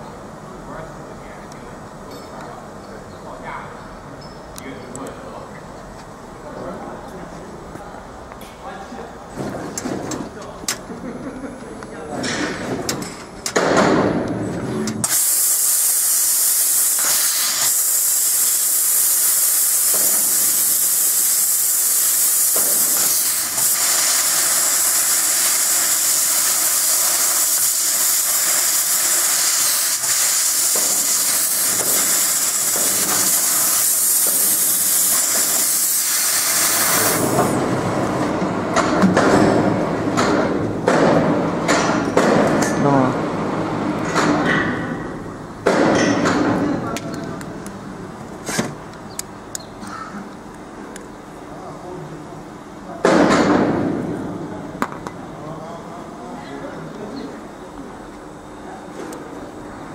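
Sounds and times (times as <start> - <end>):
gas jet hissing: 15.0 - 37.6.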